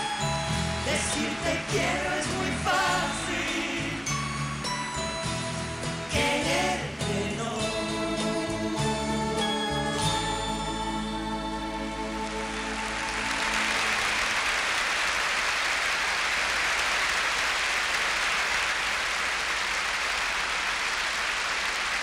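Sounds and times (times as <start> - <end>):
large audience applauding: 12.2 - 22.0.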